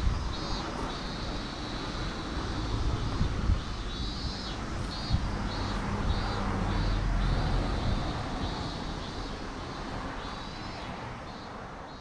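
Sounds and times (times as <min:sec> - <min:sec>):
high chirping call: 0:03.8 - 0:09.5.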